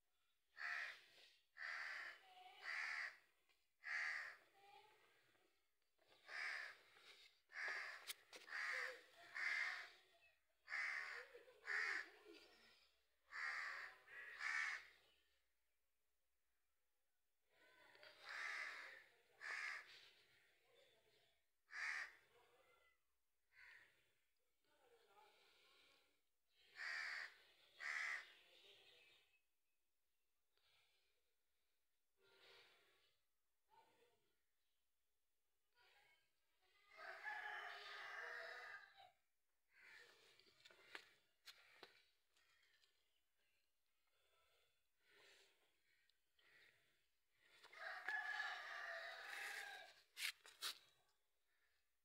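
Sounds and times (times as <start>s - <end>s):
crow cawing: 0.6s - 1.0s, 1.6s - 4.5s, 6.2s - 10.0s, 10.7s - 12.1s, 13.3s - 15.0s, 18.2s - 20.0s, 21.7s - 22.2s, 23.6s - 23.9s, 26.8s - 28.3s.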